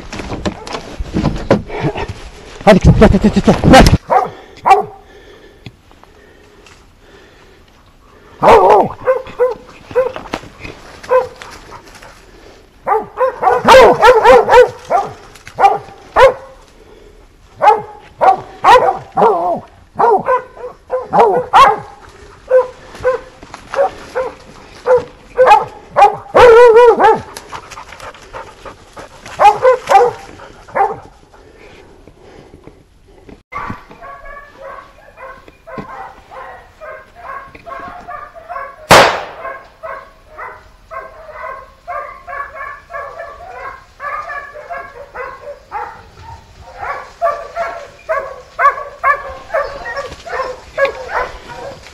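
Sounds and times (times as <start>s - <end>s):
dog barking: 4.1s - 5.0s, 8.4s - 10.2s, 11.1s - 11.5s, 12.8s - 16.6s, 17.6s - 27.4s, 29.4s - 31.2s, 33.5s - 51.9s.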